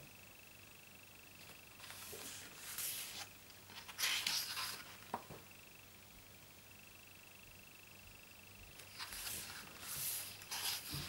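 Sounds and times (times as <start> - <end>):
paper page swishing and rustling: 1.8 - 5.0, 8.8 - 11.0.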